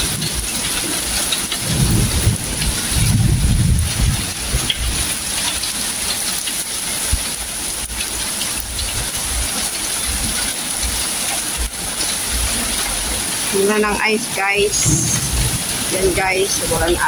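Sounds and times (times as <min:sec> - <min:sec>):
heavy rain pouring: 0:00.0 - 0:17.0
low rumbles: 0:12.6 - 0:17.0.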